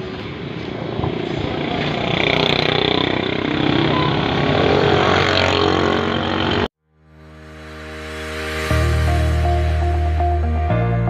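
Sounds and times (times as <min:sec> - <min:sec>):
street traffic: 0:00.0 - 0:06.7
vehicle engine running: 0:00.6 - 0:06.7.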